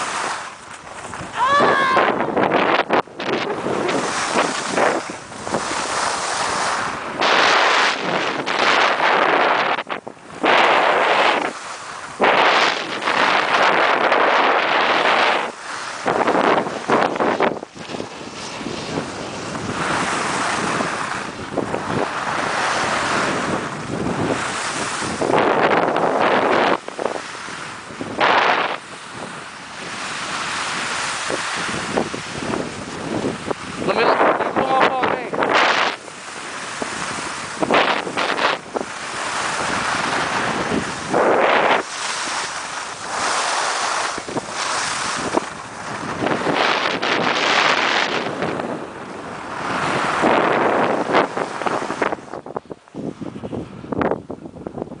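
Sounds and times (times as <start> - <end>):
skis scraping over snow: 0.0 - 1.2, 3.4 - 29.3, 35.4 - 52.3
wind buffeting microphone: 0.0 - 55.0
skis hissing over snow: 41.1 - 45.4.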